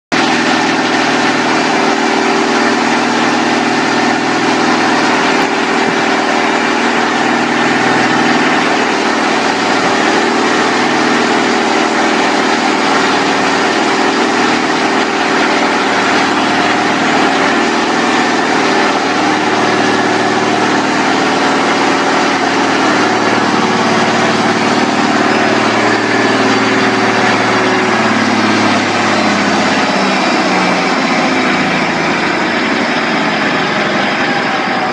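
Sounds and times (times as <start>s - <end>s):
diesel engine running: 0.0s - 34.9s.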